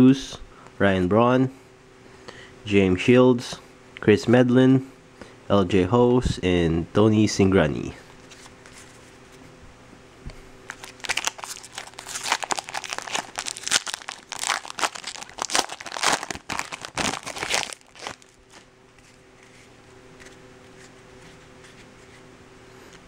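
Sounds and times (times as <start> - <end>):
foil wrapper tearing and crinkling: 10.7 - 18.7.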